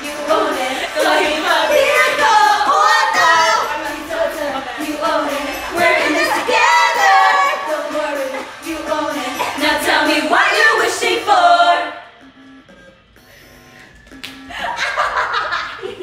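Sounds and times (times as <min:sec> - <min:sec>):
women singing a pop song: 0:00.0 - 0:12.1
backing music: 0:00.0 - 0:16.0.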